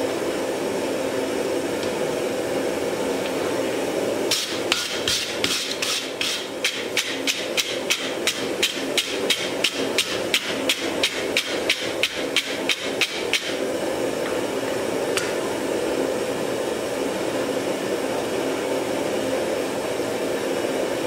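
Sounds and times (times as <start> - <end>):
hammer striking iron on anvil: 4.3 - 13.6.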